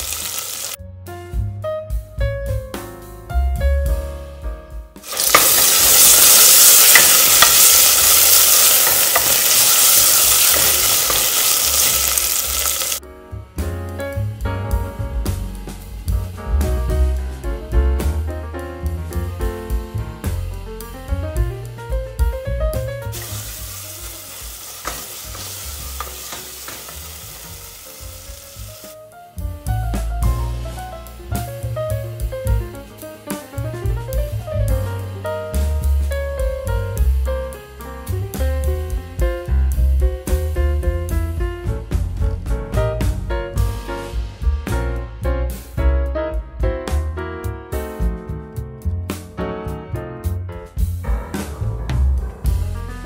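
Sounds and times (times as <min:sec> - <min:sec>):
food sizzling in hot oil: 0:00.0 - 0:00.8, 0:05.0 - 0:13.0, 0:23.1 - 0:29.0
background music: 0:00.0 - 0:53.0.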